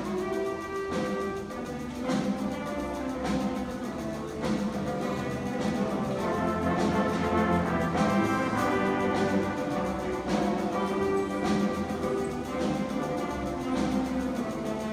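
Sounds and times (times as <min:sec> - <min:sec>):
band playing brass and wind: 0:00.0 - 0:14.9.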